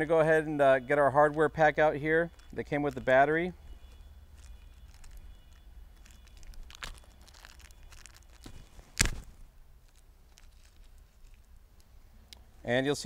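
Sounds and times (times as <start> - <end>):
plastic bag tearing and crinkling: 3.8 - 11.5.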